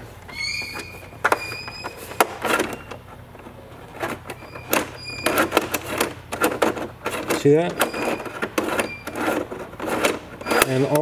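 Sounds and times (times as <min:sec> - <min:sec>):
short high squeaks: 0:00.2 - 0:03.1, 0:04.3 - 0:05.8, 0:07.8 - 0:09.5, 0:10.4 - 0:11.0
metal linkage clicking and clacking: 0:04.0 - 0:11.0.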